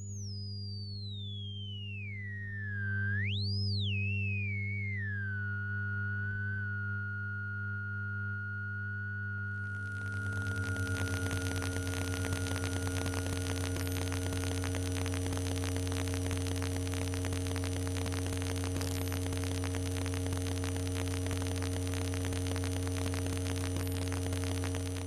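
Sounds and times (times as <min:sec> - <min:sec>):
low electrical hum: 0:03.9 - 0:25.0
thin high whistle: 0:08.4 - 0:14.6
fast crackling static: 0:09.6 - 0:25.0.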